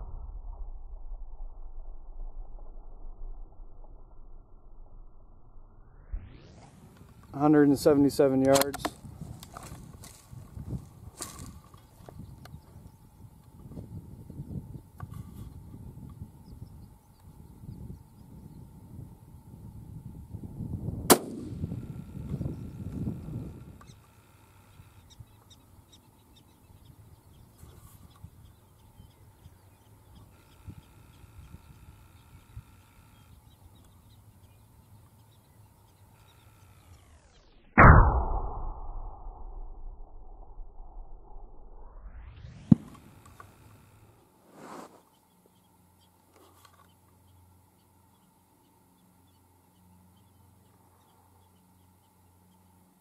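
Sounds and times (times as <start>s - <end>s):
low wind rumble: 0.0s - 44.2s
faint low hum: 0.0s - 53.0s
distant bird chirps: 11.2s - 19.5s, 21.6s - 37.7s, 44.9s - 53.0s.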